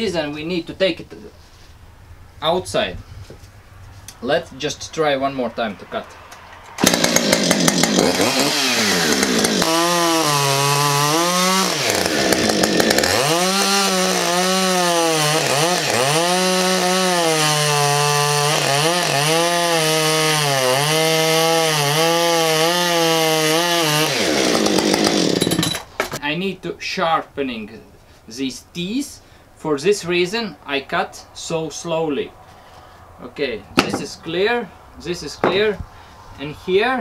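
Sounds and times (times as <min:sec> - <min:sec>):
chainsaw cutting wood: 0:06.7 - 0:26.2.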